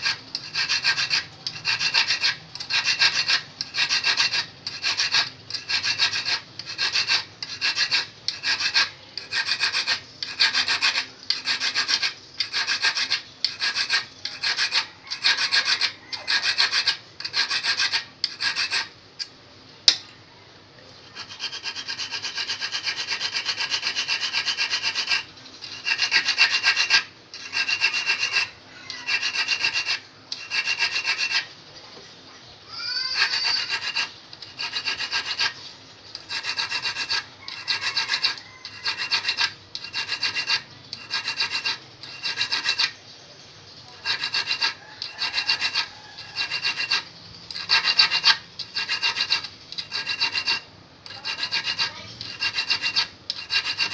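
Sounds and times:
file rasping on steel: 0:00.0 - 0:19.3, 0:21.0 - 0:31.5, 0:33.0 - 0:43.0, 0:43.9 - 0:53.9.

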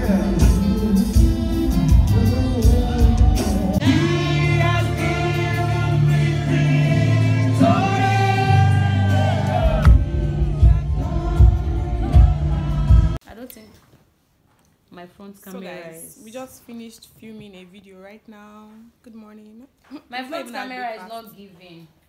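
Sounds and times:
choir singing gospel song: 0:00.0 - 0:13.2
instrumental backing: 0:00.0 - 0:13.2
steady bass line: 0:00.0 - 0:13.2.

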